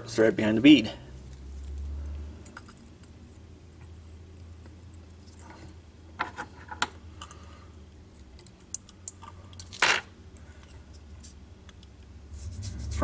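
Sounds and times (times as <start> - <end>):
faint low hum: 0.0 - 13.0
scratchy sound: 12.2 - 13.0.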